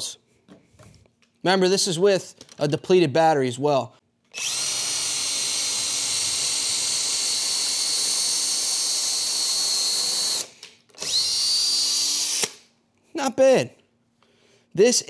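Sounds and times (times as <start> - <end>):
cordless drill boring into wood: 4.3 - 12.6.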